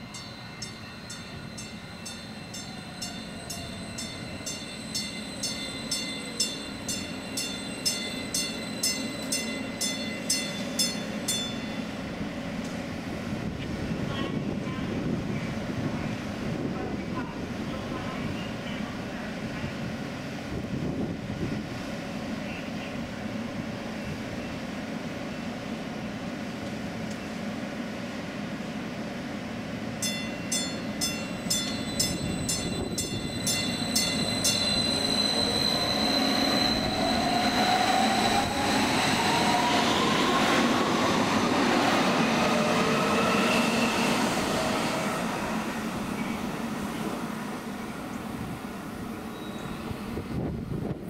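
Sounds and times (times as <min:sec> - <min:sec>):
train beeps: 0:00.0 - 0:16.2, 0:29.8 - 0:50.5
train hum: 0:00.0 - 0:51.0.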